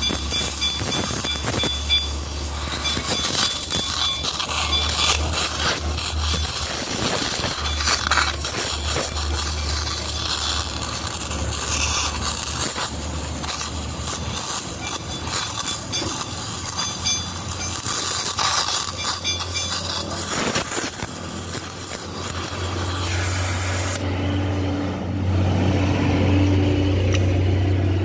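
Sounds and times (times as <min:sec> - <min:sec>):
cutting torch hissing and crackling: 0:00.0 - 0:25.7
small metallic clinks: 0:07.6 - 0:20.3.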